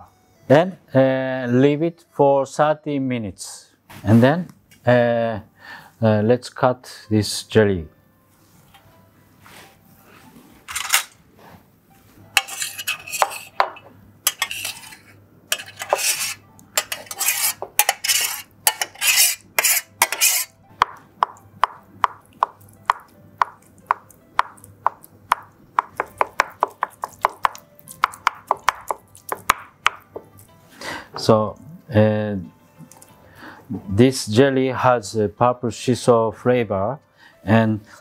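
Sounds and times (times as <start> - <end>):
knife tapping on cutting board: 20.8 - 30.3.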